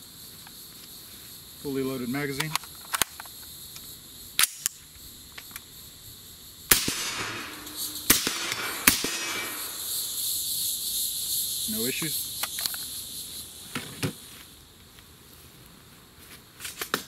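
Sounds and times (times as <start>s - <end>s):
insects buzzing: 0.0s - 17.0s
rifle loading clicks: 2.4s - 3.4s
suppressed rifle shots: 6.7s - 9.8s.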